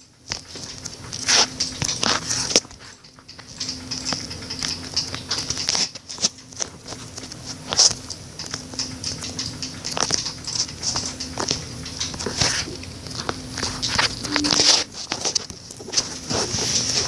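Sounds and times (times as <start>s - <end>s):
low hum: 12.7s - 15.5s.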